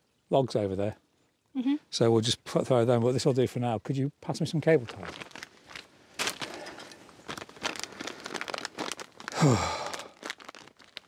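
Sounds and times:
plastic bag crinkling: 4.9s - 11.0s
person sighing: 9.3s - 10.3s.

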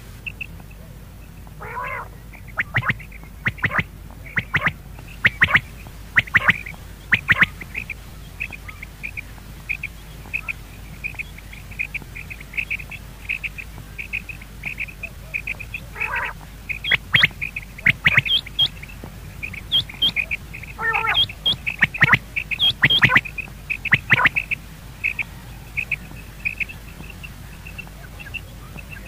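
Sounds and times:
faint high bird chirps: 0.2s - 29.0s
bird sharp clicking notes: 1.5s - 29.0s
game bird rasping call: 1.6s - 11.2s, 13.3s - 18.8s, 19.4s - 25.2s.

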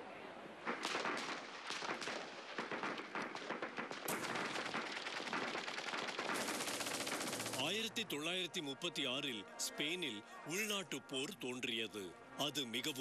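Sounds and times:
rapid rifle and machine-gun shots: 0.7s - 7.9s.

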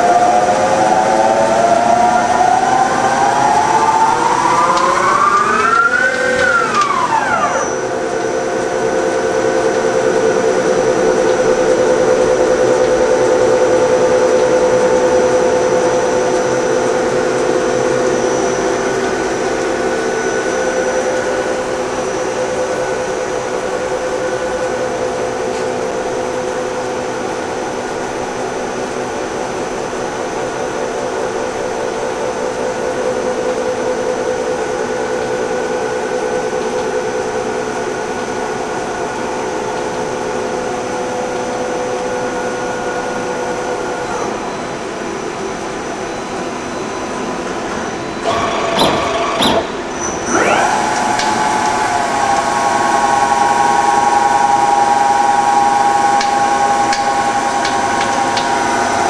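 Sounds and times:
lathe spindle whine: 0.0s - 59.0s
faint high whistle: 48.2s - 50.6s.

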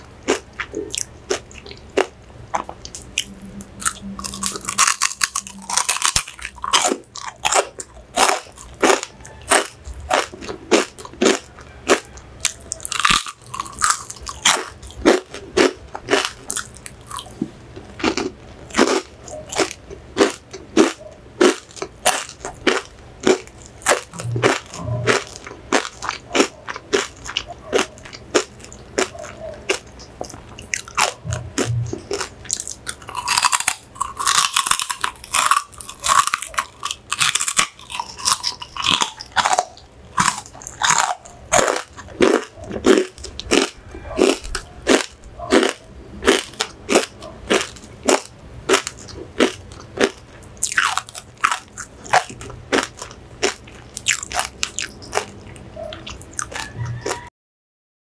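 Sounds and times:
pork rinds being chewed: 0.0s - 57.3s.

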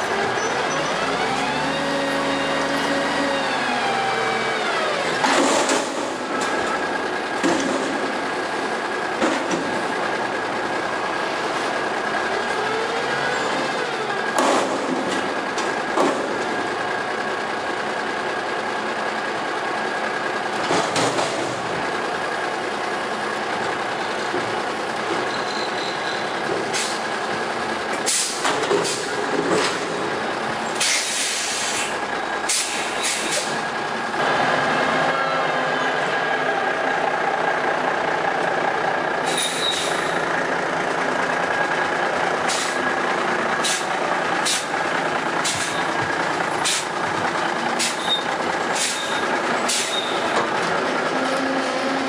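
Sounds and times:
garbage truck engine: 0.0s - 52.0s
metal clanks and bangs: 5.2s - 6.8s, 7.4s - 8.2s, 20.6s - 21.8s.

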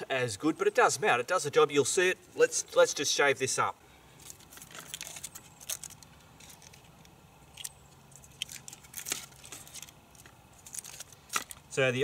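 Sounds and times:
aluminium foil crinkling: 4.2s - 11.8s.

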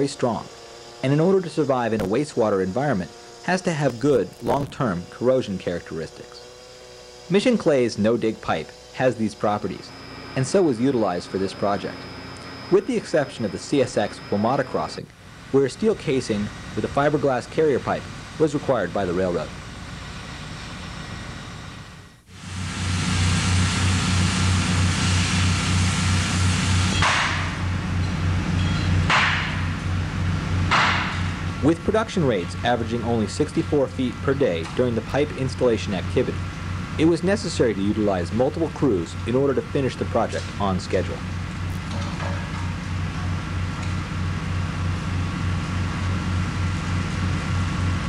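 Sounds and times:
cutting torch hissing: 0.0s - 21.6s, 22.2s - 28.4s
low pulsing machine drone: 0.0s - 48.0s.

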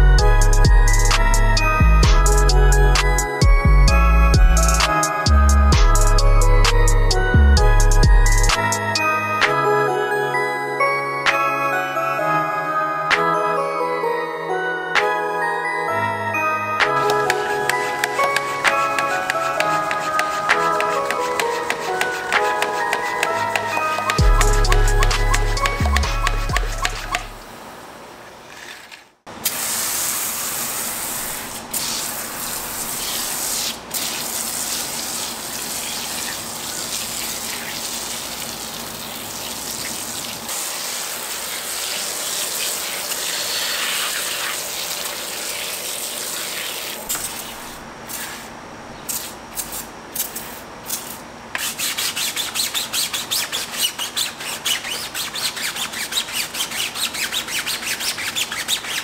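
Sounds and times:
brush scrubbing wheel: 17.0s - 27.4s, 31.0s - 48.5s, 49.1s - 59.0s
foam sprayer hissing: 17.0s - 27.4s, 29.4s - 51.1s.

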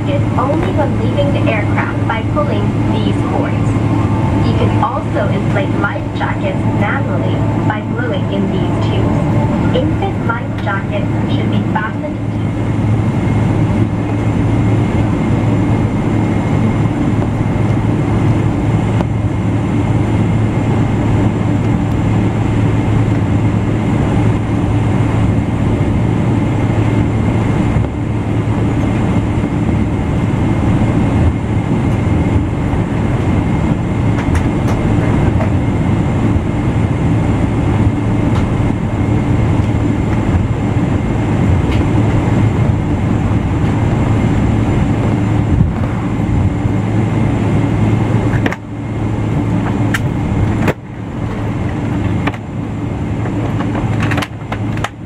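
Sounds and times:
faint high whine: 0.0s - 13.4s
jet engines low rumble: 0.0s - 55.0s.

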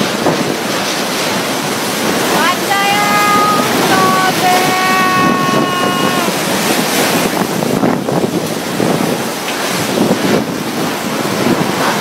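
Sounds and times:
storm wind rushing: 0.0s - 12.0s
wind buffeting microphone: 0.0s - 12.0s
high wailing tone: 2.5s - 6.5s.

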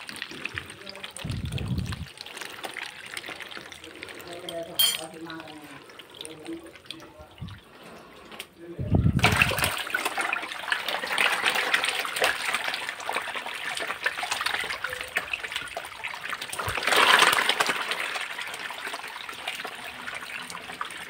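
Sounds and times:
fish thrashing and splashing: 0.0s - 8.5s, 9.1s - 21.0s
water running from hose into bucket: 0.0s - 21.0s.

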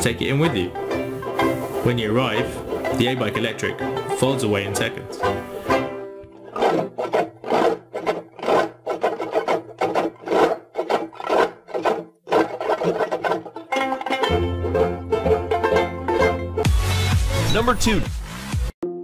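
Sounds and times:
bass and accompaniment: 0.0s - 7.8s, 13.3s - 19.0s
strummed acoustic string instrument: 0.0s - 17.2s.

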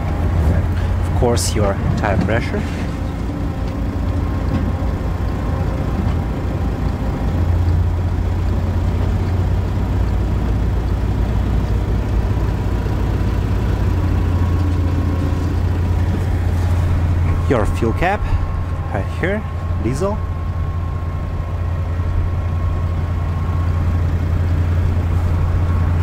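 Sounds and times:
diesel engine idling: 0.0s - 26.0s.

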